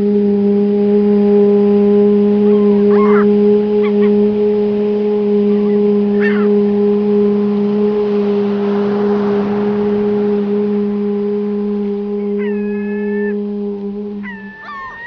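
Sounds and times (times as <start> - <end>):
person chanting oo tone: 0.0 - 15.0
bird chirping: 2.4 - 4.2, 5.5 - 6.7, 11.8 - 13.4, 14.2 - 15.0.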